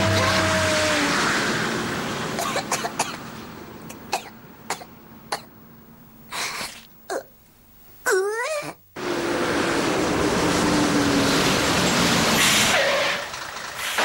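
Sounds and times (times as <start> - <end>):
cartoon truck racing past: 0.0 - 2.4, 9.0 - 14.0
boy coughing: 2.4 - 3.2.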